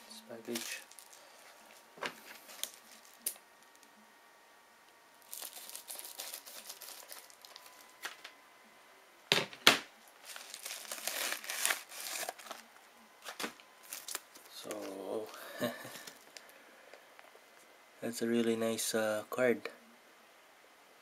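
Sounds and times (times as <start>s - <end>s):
packaging tearing and crinkling: 0.5s - 1.2s, 2.3s - 3.8s, 5.2s - 8.2s, 10.2s - 12.6s, 13.2s - 15.0s.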